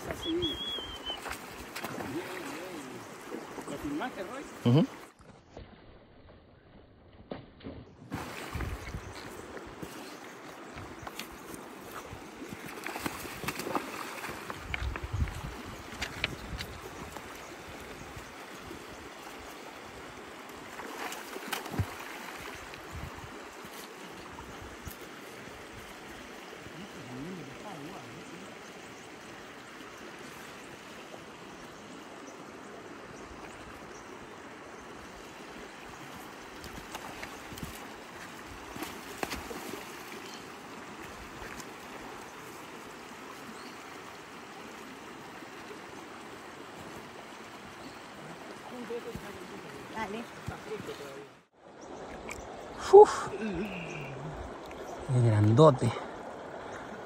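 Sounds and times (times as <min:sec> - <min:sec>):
river water rushing over stones: 0:08.1 - 0:57.0.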